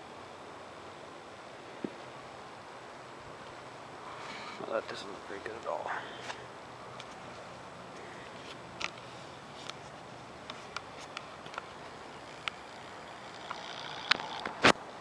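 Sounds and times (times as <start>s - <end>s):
steady hiss: 0.0s - 15.0s
camera rig clicks and ticks: 8.5s - 9.8s, 12.3s - 14.8s.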